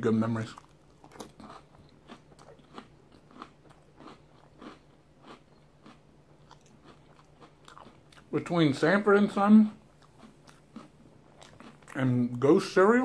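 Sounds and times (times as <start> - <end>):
crunchy chewing of cereal: 0.3 - 8.5, 9.6 - 12.5.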